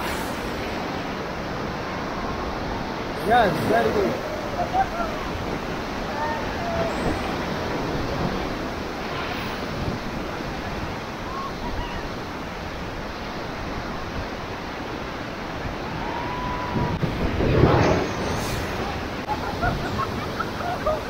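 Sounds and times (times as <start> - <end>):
whitewater rapids rushing: 0.0 - 21.0
loud water splash: 16.4 - 19.3.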